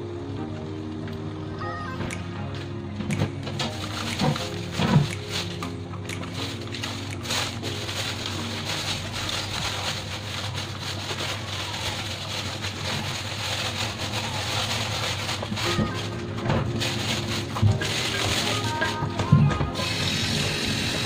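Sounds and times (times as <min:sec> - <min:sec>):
background music: 0:00.0 - 0:21.0
wok cooking hiss and crackles: 0:06.4 - 0:16.2, 0:19.8 - 0:21.0.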